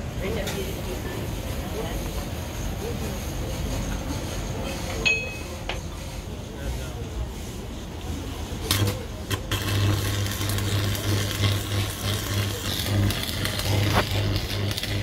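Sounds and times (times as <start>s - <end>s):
welding arc crackling and sizzling: 8.2s - 15.0s.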